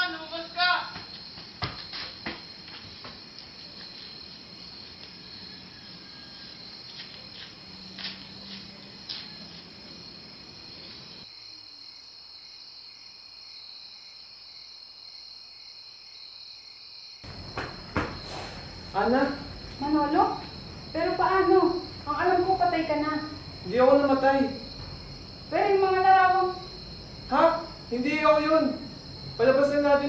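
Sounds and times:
crickets chirping: 0.0s - 30.0s
low background hiss: 17.3s - 30.0s.

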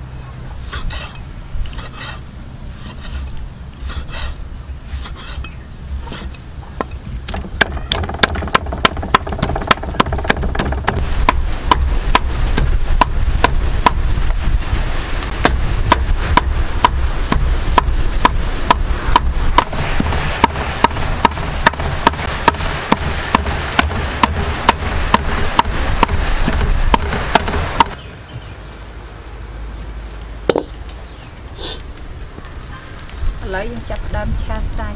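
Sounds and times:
cleaver chopping on wooden block: 6.1s - 14.0s, 15.4s - 28.0s.

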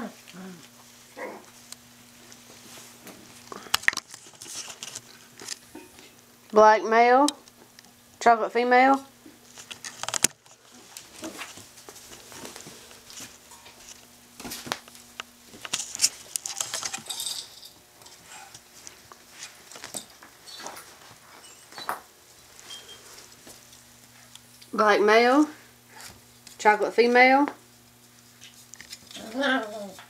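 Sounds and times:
puppy paws pattering on tile: 9.5s - 24.7s.

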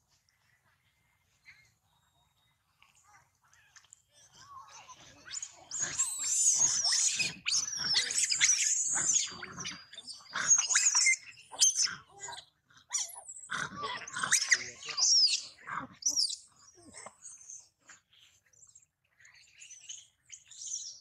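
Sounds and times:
macaque screaming: 5.3s - 16.3s.

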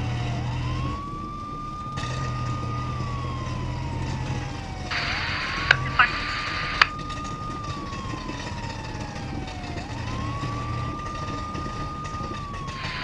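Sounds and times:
low engine hum: 0.0s - 13.0s
police siren wailing: 0.0s - 13.0s
sharp clicks: 4.9s - 7.0s.

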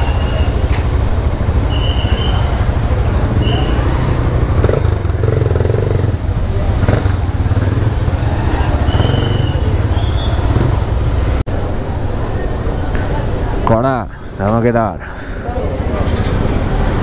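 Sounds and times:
motorcycle engine running: 0.0s - 11.4s.

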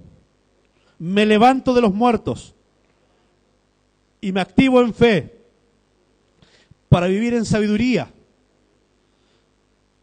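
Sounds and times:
man's voice: 1.0s - 2.6s, 4.2s - 5.4s, 6.9s - 8.2s.

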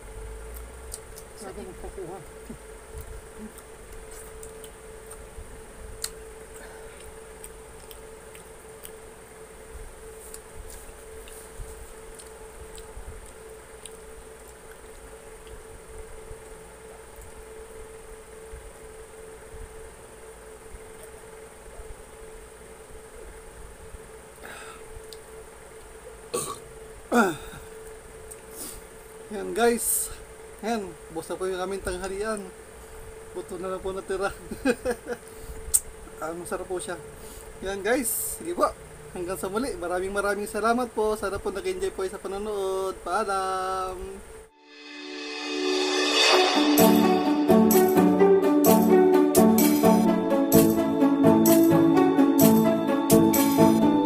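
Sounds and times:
faint steady whine: 0.0s - 54.0s
man burping: 26.3s - 27.7s
faint high drone: 43.5s - 54.0s
low hum: 44.4s - 49.0s.

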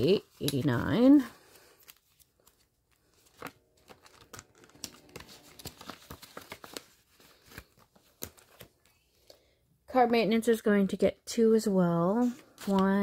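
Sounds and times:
paper money rustling and crinkling: 0.0s - 9.0s, 12.1s - 13.0s.

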